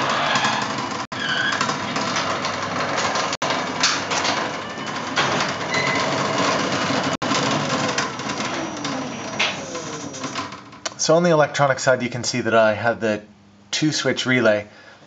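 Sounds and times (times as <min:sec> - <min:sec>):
garage door opener running: 0:00.0 - 0:10.9.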